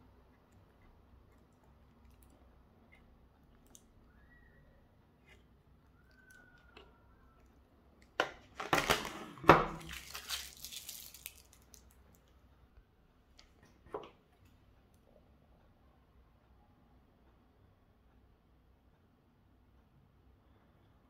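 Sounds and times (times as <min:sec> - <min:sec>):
plastic bag crinkling: 0:08.1 - 0:12.3.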